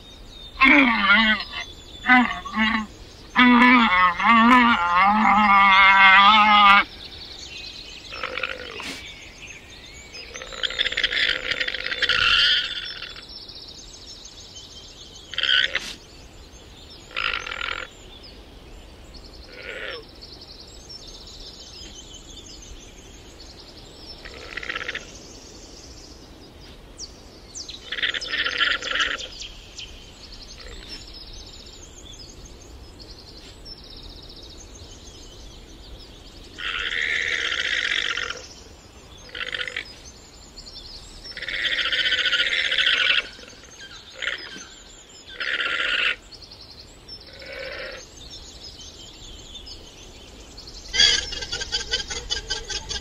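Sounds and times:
llamas calling harshly: 0.6s - 6.9s, 50.9s - 53.0s.

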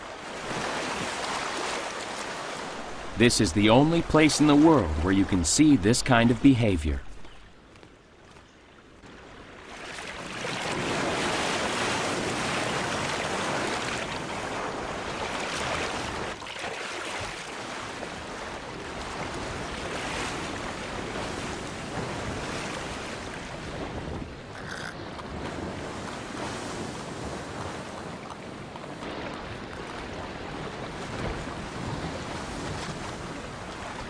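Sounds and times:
rushing water: 0.0s - 7.7s, 8.8s - 23.6s
wind: 0.0s - 34.0s.

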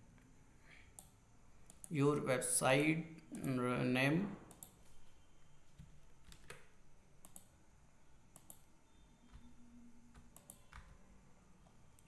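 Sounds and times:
faint keyboard keystrokes: 9.2s - 11.0s.

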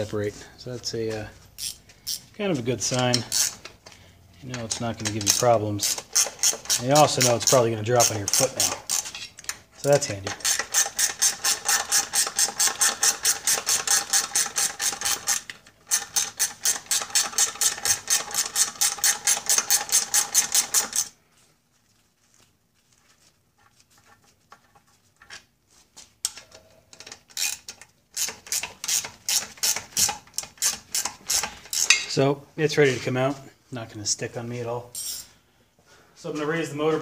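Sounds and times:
ratchet wrench clicking: 1.6s - 2.2s, 3.1s - 3.7s, 4.6s - 9.1s, 10.3s - 21.1s, 27.0s - 32.0s.

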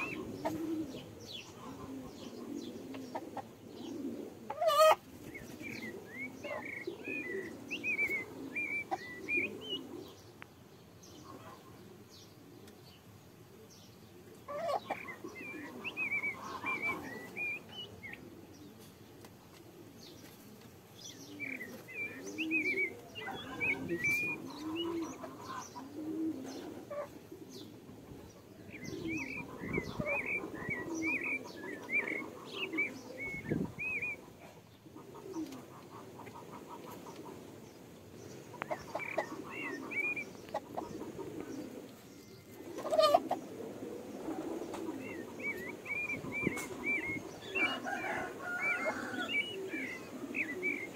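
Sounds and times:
bird cooing: 0.0s - 10.4s, 11.0s - 50.9s
birds chirping high: 0.0s - 50.9s.

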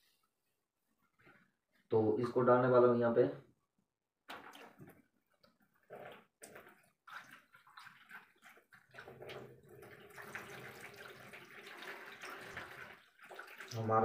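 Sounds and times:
water pouring into plastic basin: 4.3s - 5.0s, 5.6s - 14.0s.

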